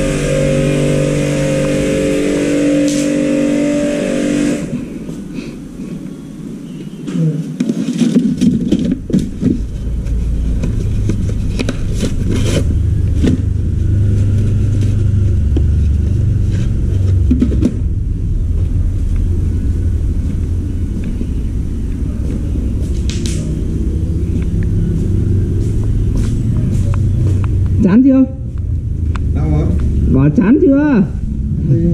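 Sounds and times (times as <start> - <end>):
machinery motor rumble: 0.0 - 6.6, 8.4 - 31.9
plastic parts clattering in crate: 7.6 - 9.7.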